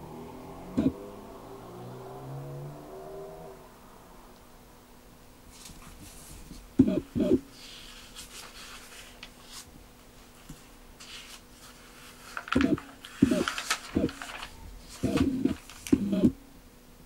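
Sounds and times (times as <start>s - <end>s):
paper pages rustling: 5.5s - 6.7s, 7.6s - 16.1s.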